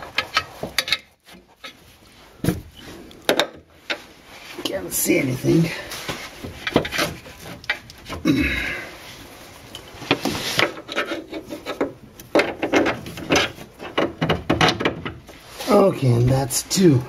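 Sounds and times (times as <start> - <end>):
metal scraping on metal: 9.8 - 11.9.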